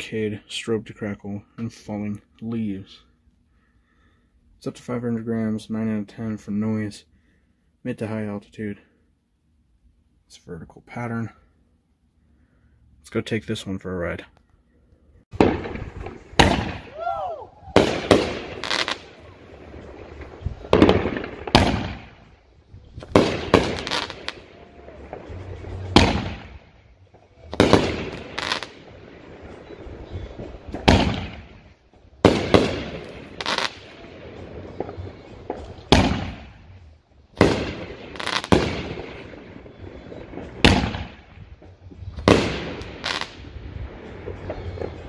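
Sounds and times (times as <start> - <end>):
firework shells booming: 15.3 - 22.4, 23.0 - 45.0.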